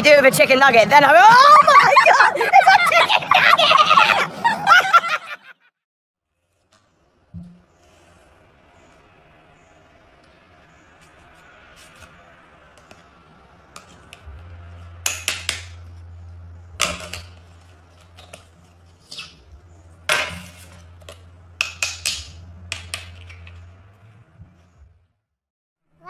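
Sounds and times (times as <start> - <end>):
low steady hum: 7.4 - 25.1
objects clicking and clacking: 13.7 - 19.4, 20.0 - 23.8.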